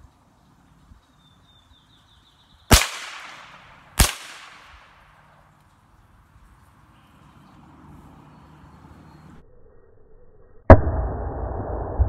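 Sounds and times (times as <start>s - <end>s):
rifle shots with echo: 2.7s - 5.1s.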